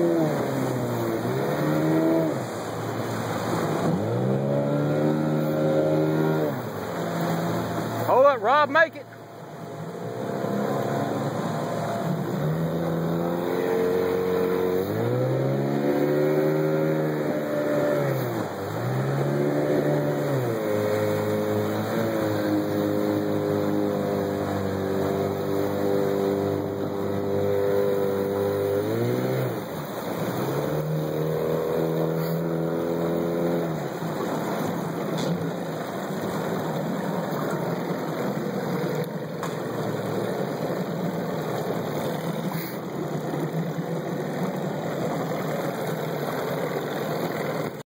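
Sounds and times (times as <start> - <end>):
outboard boat motor revving: 0.0 - 47.8
water and wind rushing: 0.0 - 47.8.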